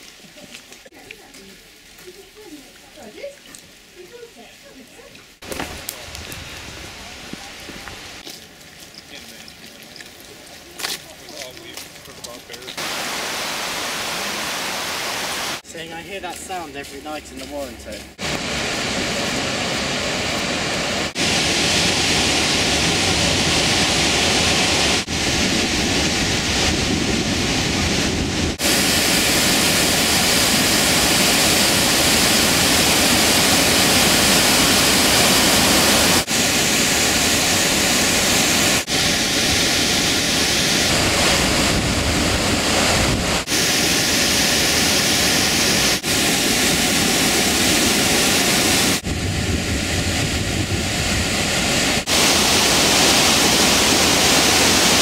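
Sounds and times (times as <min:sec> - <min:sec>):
waterfall crashing onto rock: 0:05.4 - 0:06.8, 0:11.3 - 0:15.6, 0:28.5 - 0:49.0, 0:52.0 - 0:55.0.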